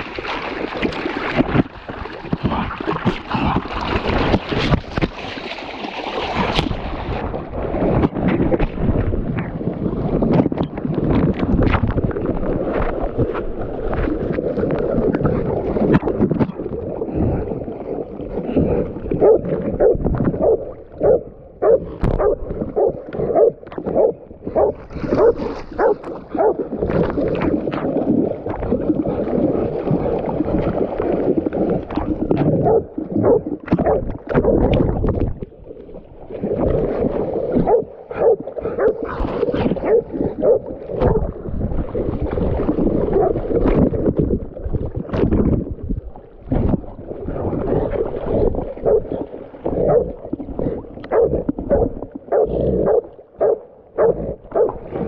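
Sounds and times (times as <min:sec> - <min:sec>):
water splashing: 0:00.0 - 0:55.0
dogs barking: 0:19.2 - 0:26.6, 0:39.8 - 0:41.2.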